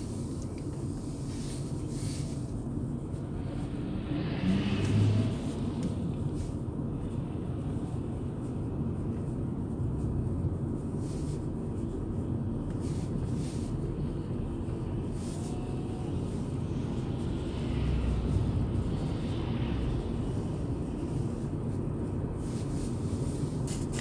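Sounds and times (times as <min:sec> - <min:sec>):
road and engine rumble in car: 0:00.0 - 0:24.0
vehicles whooshing past: 0:03.0 - 0:09.0, 0:13.0 - 0:24.0.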